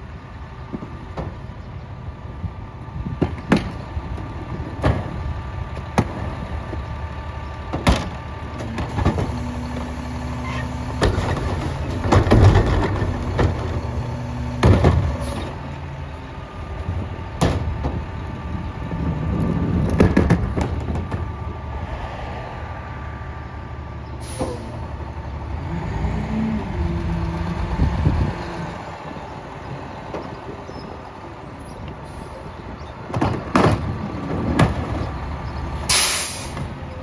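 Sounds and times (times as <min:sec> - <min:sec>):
garbage truck idling: 0:00.0 - 0:21.8
plastic carts banging on hopper: 0:11.0 - 0:13.8, 0:19.7 - 0:21.2.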